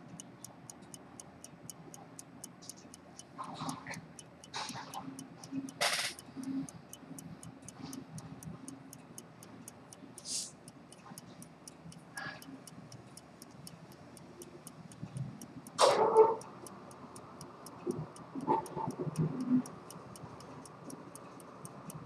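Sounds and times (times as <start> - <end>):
pocket watch ticking: 0.0 - 22.0.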